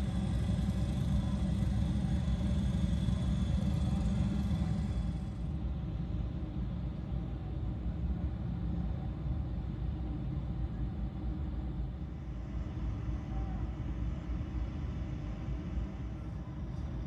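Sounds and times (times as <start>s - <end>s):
vehicle engines rumbling: 0.0s - 5.4s.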